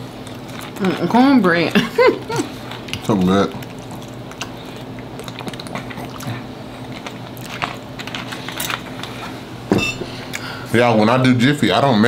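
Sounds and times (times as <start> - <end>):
chewing and wet mouth noises: 0.0 - 9.4.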